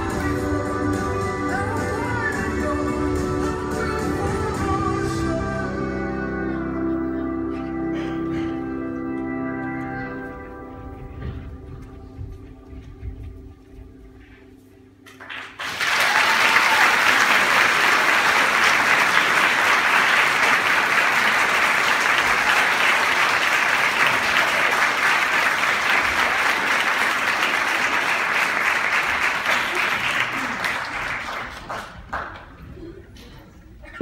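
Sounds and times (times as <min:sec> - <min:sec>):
audience applause: 0:15.1 - 0:32.9.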